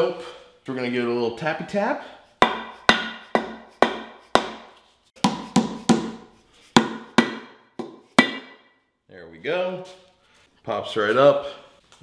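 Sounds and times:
mallet rapping metal manifold: 2.4 - 6.2, 6.8 - 8.7.

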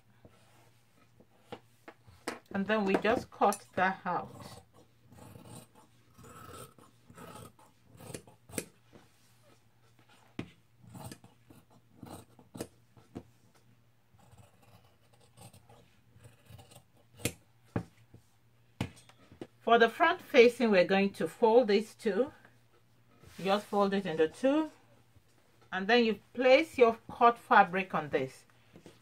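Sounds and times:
shears cutting fabric: 2.8 - 8.9, 10.8 - 12.8, 14.2 - 17.5.

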